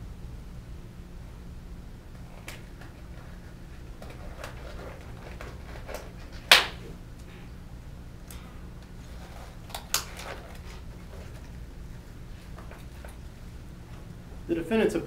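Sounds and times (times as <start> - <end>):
loud plastic snap: 6.4 - 6.9.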